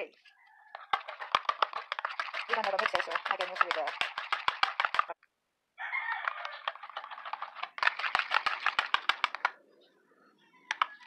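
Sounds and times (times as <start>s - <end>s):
whisk clicking against bowl: 0.7s - 5.2s, 6.2s - 9.6s.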